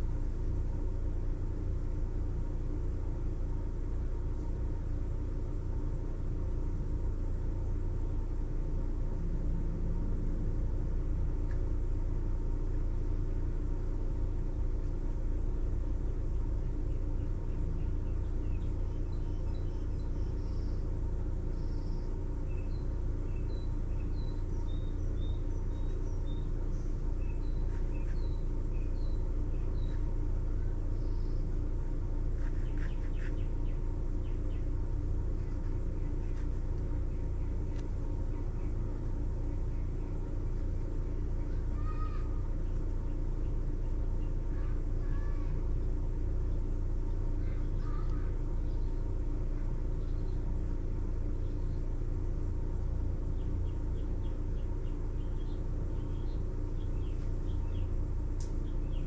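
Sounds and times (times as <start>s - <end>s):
low background rumble: 0.0s - 59.0s
faint bird chirps: 16.4s - 45.6s, 47.3s - 49.2s, 53.1s - 59.0s.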